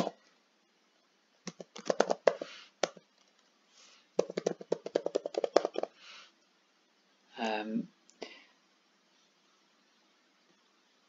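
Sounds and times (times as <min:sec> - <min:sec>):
typing on a keyboard: 0:01.5 - 0:03.0, 0:04.2 - 0:05.9.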